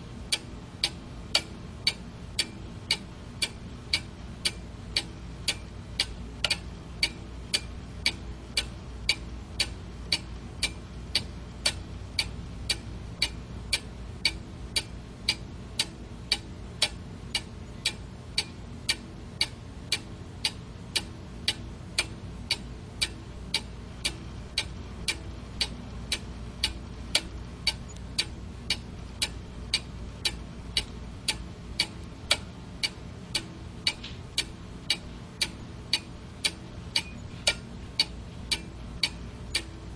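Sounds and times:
faint low hum: 0:00.0 - 0:39.9
clock ticking: 0:00.3 - 0:39.9.

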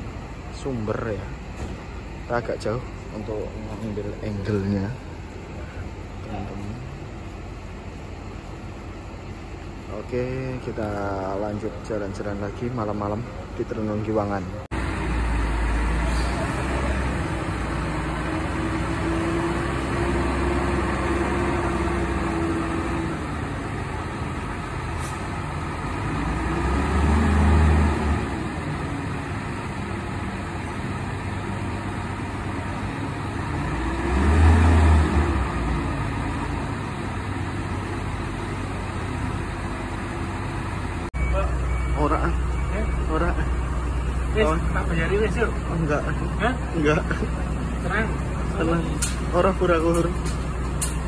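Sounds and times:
diesel coach engine revving: 0:14.6 - 0:51.0.

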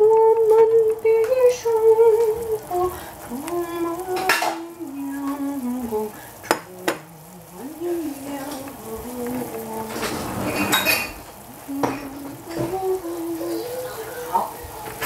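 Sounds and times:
woman humming: 0:00.0 - 0:10.0, 0:11.4 - 0:15.0
kitchenware clinks: 0:10.0 - 0:12.1.

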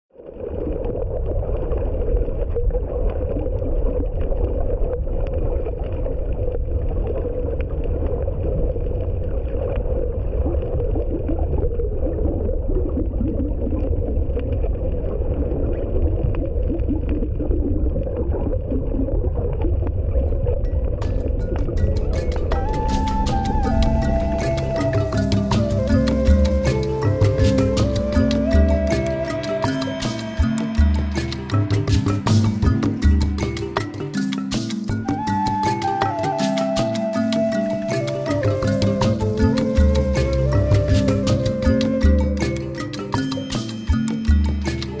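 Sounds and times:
underwater rumble and hiss: 0:00.2 - 0:33.8.

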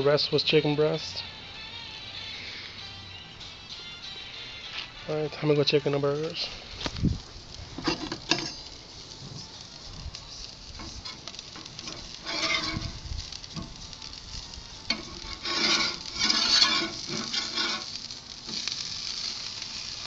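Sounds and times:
patties sizzling on a grill: 0:00.0 - 0:20.0
spatula scraping grill grate: 0:05.6 - 0:20.0.

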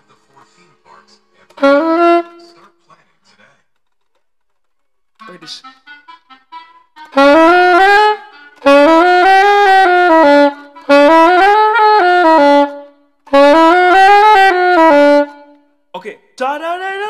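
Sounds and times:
soprano saxophone note runs: 0:07.1 - 0:15.4.

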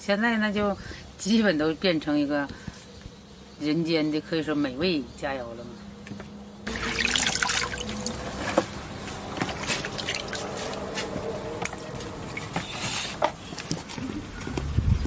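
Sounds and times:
water splashing and dripping: 0:06.7 - 0:12.8.

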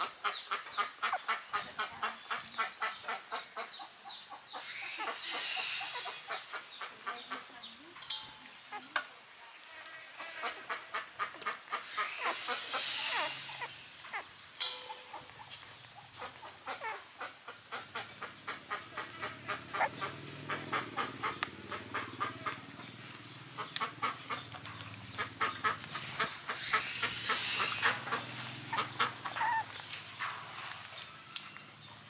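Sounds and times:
puppies suckling: 0:12.0 - 0:14.3, 0:28.7 - 0:29.8
puppy squeaks: 0:12.2 - 0:14.3, 0:28.7 - 0:29.8.

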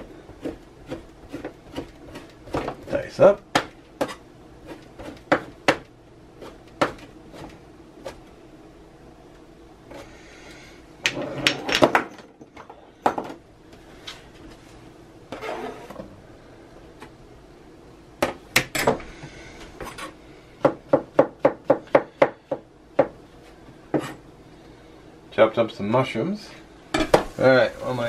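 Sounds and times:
knife chopping on plastic board: 0:00.3 - 0:08.2.

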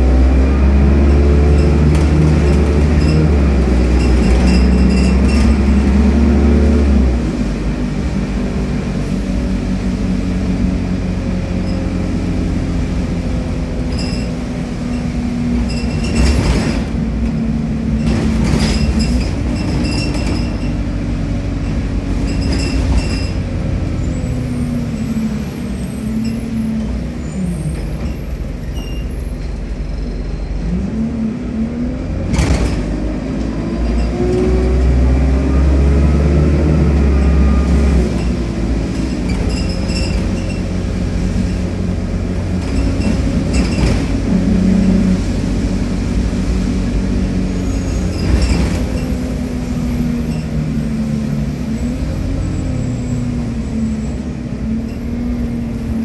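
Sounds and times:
bus diesel engine droning: 0:00.0 - 0:56.0
bus body knocks and rattles: 0:01.4 - 0:06.3, 0:15.0 - 0:23.8, 0:32.2 - 0:34.5, 0:38.1 - 0:44.6, 0:48.0 - 0:49.6.

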